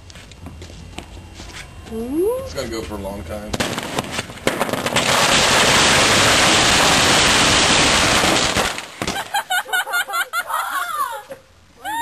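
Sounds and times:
firecrackers crackling: 0:03.4 - 0:10.0.

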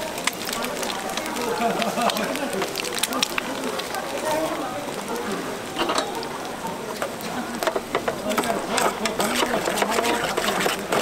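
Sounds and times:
utensil scraping metal pot: 0:07.6 - 0:11.0.

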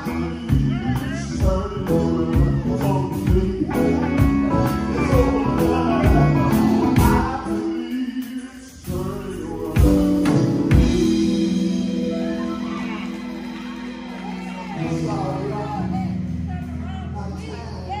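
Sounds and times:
male singers on microphones: 0:00.0 - 0:12.5, 0:14.8 - 0:16.2
live band with drums and keyboard: 0:00.0 - 0:18.0.

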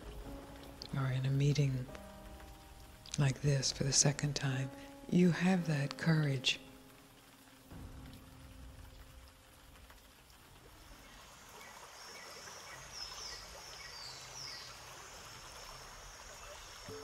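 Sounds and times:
rushing water: 0:00.0 - 0:17.0.

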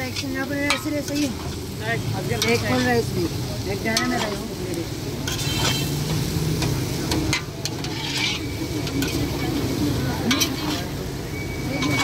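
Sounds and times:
metal spatula scraping wok: 0:00.0 - 0:12.0
noodles sizzling in a wok: 0:00.0 - 0:12.0.

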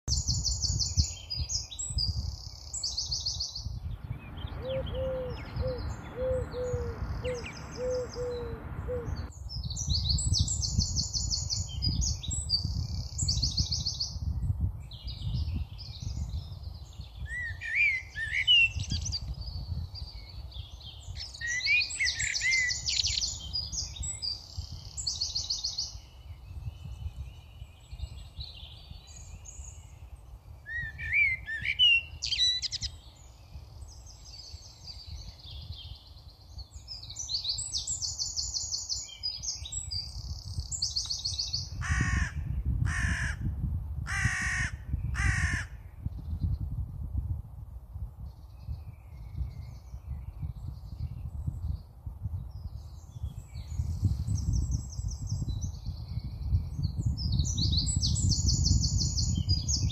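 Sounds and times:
sparrows chirping: 0:00.1 - 0:14.2, 0:15.2 - 0:42.2
loud harsh bird calls: 0:04.3 - 0:09.3, 0:41.7 - 0:43.5, 0:44.1 - 0:45.9.

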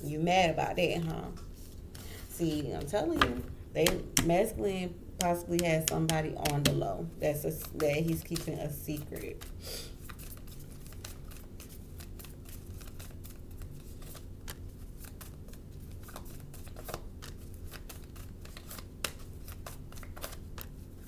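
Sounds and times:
cards being shuffled: 0:07.5 - 0:21.0.

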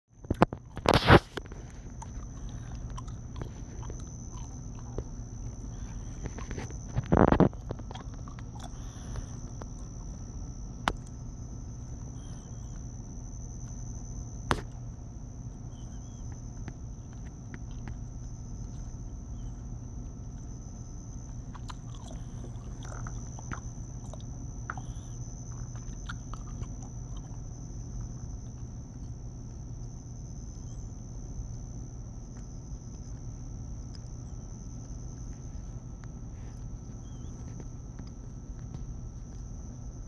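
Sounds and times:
low background rumble: 0:00.1 - 0:40.0
faint clicks and scratches: 0:00.2 - 0:11.2, 0:32.3 - 0:40.0
high-pitched insect drone: 0:00.5 - 0:33.0.

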